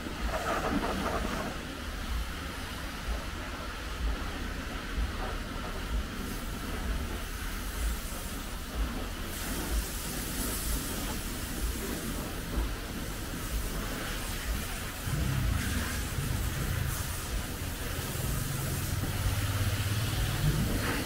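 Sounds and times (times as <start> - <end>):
high-pressure hose spraying water: 0.0 - 21.0
low thumps: 14.5 - 21.0.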